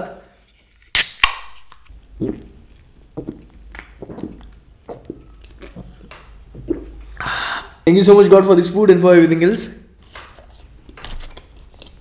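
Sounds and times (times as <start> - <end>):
can cracked open: 0.8 - 1.9
gulping swallows: 2.2 - 7.3.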